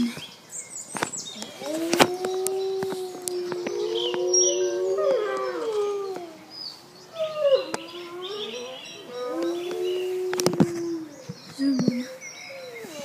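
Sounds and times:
wolves howling: 1.4 - 11.4.

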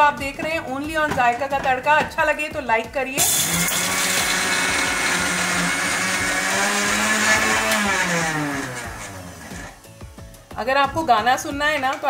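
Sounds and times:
mixer grinder grinding: 3.2 - 9.8
motor winding down: 3.4 - 9.8.

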